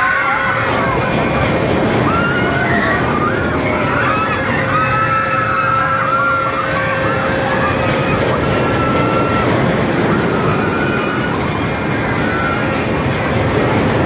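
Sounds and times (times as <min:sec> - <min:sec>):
riders screaming: 0:00.0 - 0:13.3
ride car rolling on track: 0:00.0 - 0:14.0.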